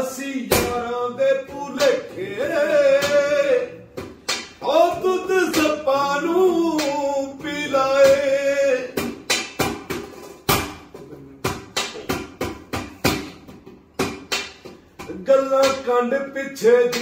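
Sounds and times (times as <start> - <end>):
man singing unaccompanied: 0.0 - 4.0, 4.6 - 9.2, 15.0 - 17.0.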